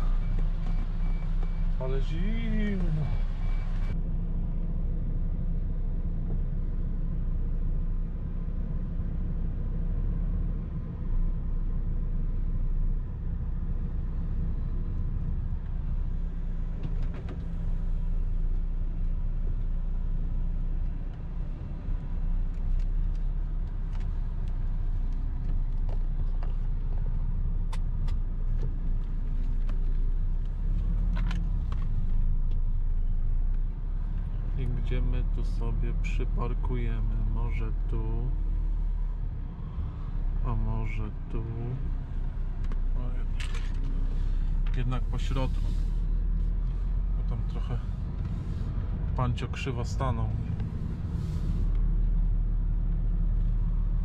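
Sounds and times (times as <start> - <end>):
diesel engine low rumble: 0.0 - 54.0.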